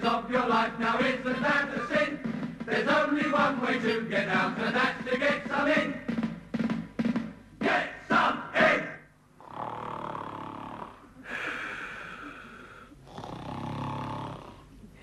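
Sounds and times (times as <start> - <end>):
drum kit hits: 1.0 - 9.0
man snoring: 9.4 - 11.0, 12.2 - 14.7.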